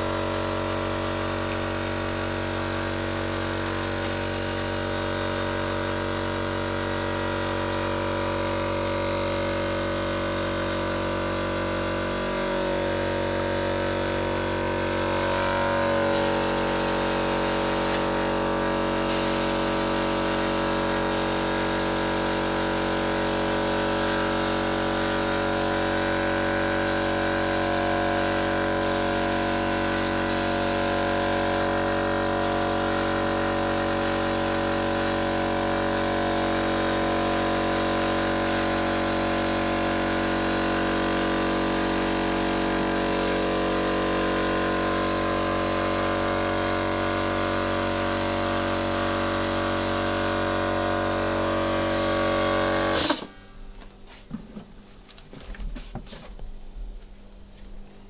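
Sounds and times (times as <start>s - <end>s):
spray gun hissing: 14.1s - 50.4s, 52.9s - 53.4s.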